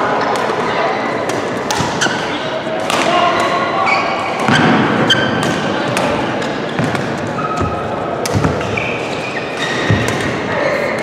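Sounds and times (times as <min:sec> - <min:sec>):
shoes squeaking on court: 0:03.9 - 0:05.6, 0:06.5 - 0:11.0
racket hitting shuttlecock: 0:04.3 - 0:08.8, 0:09.6 - 0:10.5.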